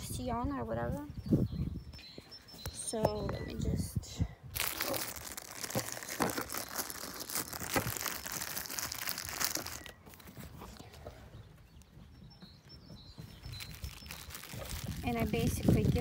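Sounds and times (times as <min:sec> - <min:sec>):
plastic bag crinkling: 0:04.5 - 0:10.8, 0:13.4 - 0:16.0.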